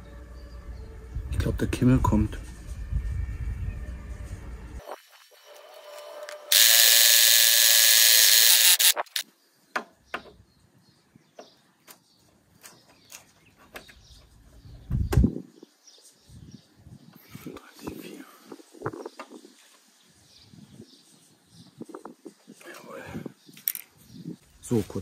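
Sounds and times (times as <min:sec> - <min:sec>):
mower blade grinding whir: 0:05.3 - 0:09.2.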